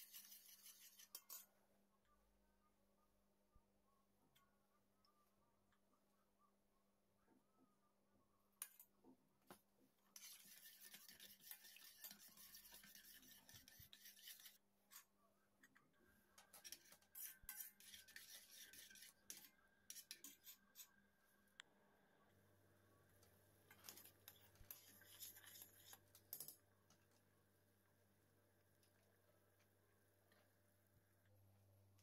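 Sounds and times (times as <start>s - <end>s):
fork scraping a saucepan: 0.0s - 1.5s, 10.2s - 15.0s, 16.4s - 21.0s, 23.7s - 26.0s.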